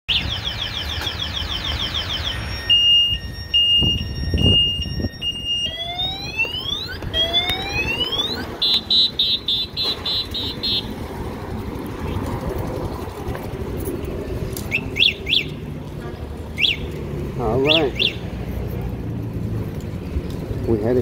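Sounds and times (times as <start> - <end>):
car alarm siren: 0.1 - 11.0, 14.7 - 15.6, 16.6 - 16.9, 17.6 - 18.3.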